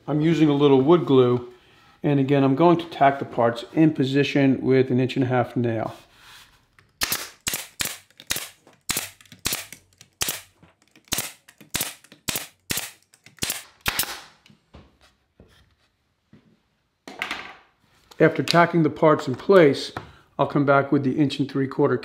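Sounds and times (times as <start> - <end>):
nail gun firing into wood: 7.0 - 14.4.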